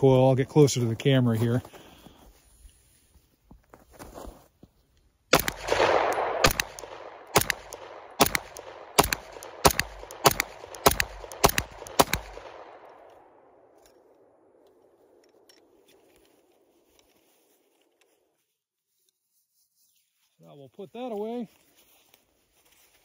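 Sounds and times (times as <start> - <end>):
pistol shots echoing: 5.3 - 13.6.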